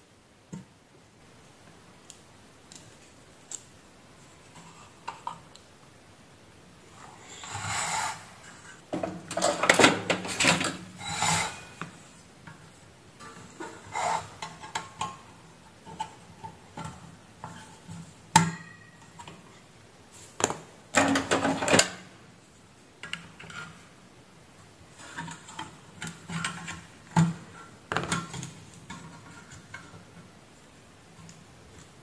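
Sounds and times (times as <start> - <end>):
rattling scrape: 7.3 - 8.8, 10.3 - 11.8.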